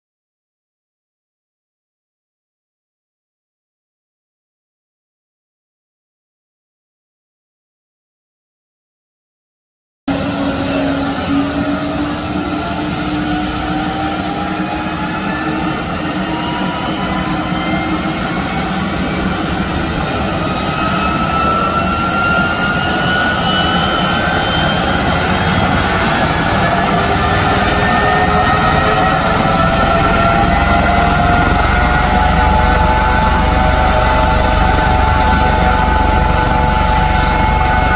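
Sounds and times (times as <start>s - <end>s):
helicopter turbine whine: 10.1s - 37.9s
low engine rumble: 24.1s - 37.9s.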